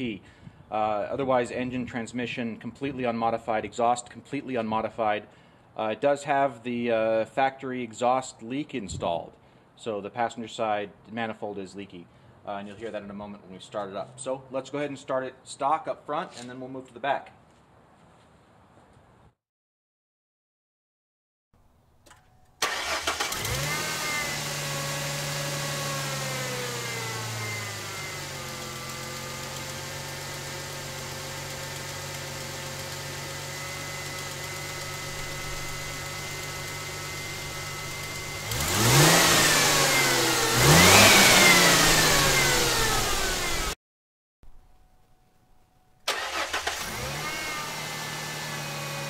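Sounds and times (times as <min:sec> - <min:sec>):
car engine starting and idling: 0:22.4 - 0:43.8, 0:46.0 - 0:49.0
engine revving: 0:22.6 - 0:43.8, 0:46.1 - 0:49.0.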